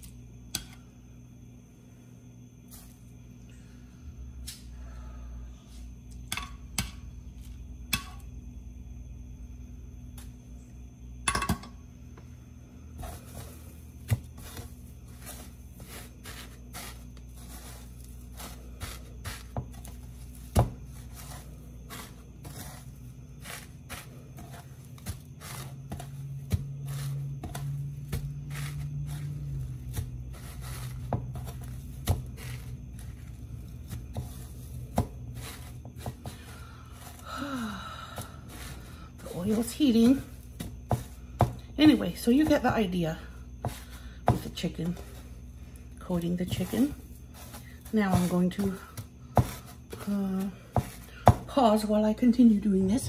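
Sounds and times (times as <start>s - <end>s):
steady low hum: 0.0s - 53.0s
fingers tapping and scraping in pan: 6.3s - 7.0s, 13.0s - 37.2s.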